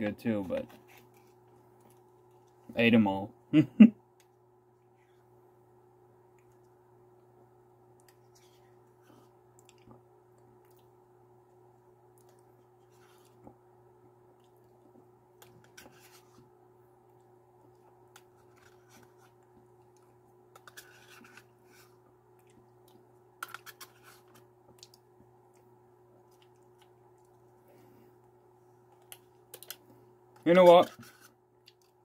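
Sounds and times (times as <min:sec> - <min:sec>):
steady low hum: 0:00.0 - 0:32.0
spoon scraping plastic cup: 0:20.6 - 0:21.5.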